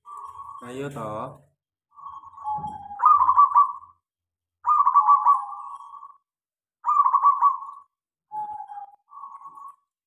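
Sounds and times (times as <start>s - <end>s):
dove cooing: 2.2s - 3.9s, 4.6s - 6.2s, 6.8s - 9.4s.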